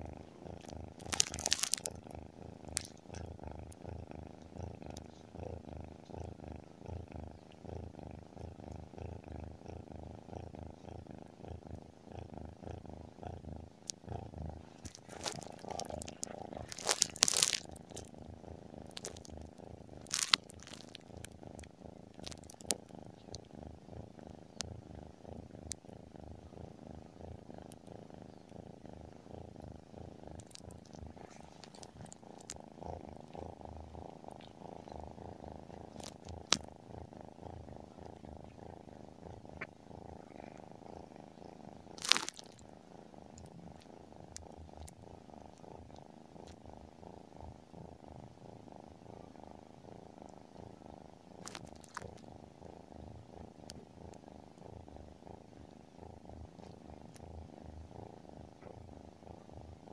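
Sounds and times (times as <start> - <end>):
kitten purring: 0.0 - 59.9.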